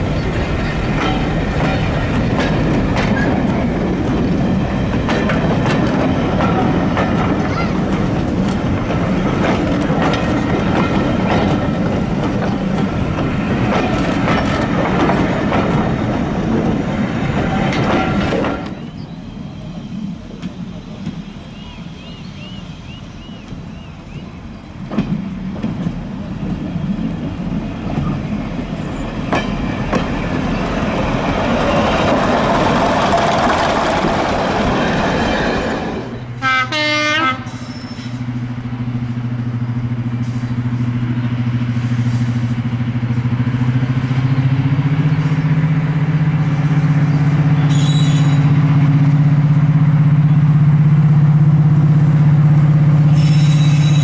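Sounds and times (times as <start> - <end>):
diesel locomotive passing: 0.0 - 54.0
diesel engine droning: 36.2 - 54.0.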